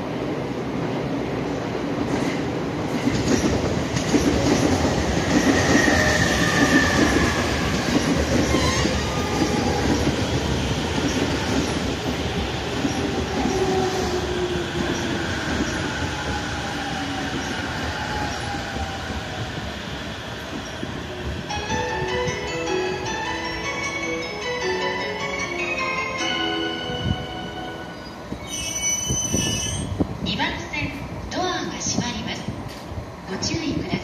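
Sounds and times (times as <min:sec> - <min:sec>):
train wheels rumbling on rails: 0:00.0 - 0:22.5.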